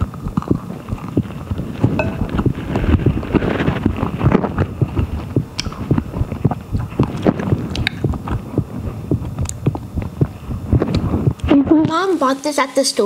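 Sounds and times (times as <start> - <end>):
wet chewing: 0.0 - 2.6, 4.0 - 11.5.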